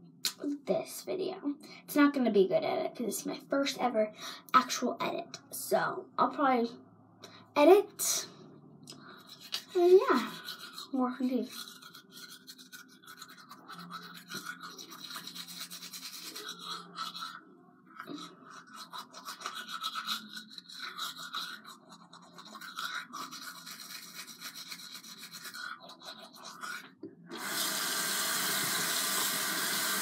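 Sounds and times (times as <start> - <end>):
toothbrush scrubbing teeth: 8.9 - 30.0
tap water running: 27.3 - 30.0.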